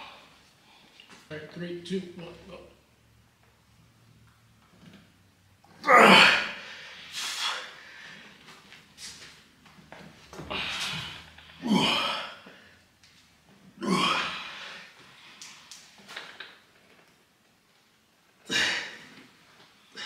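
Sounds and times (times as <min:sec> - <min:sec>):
man grunting and straining: 0:05.8 - 0:06.6, 0:10.4 - 0:12.5, 0:13.8 - 0:14.7, 0:18.5 - 0:19.0.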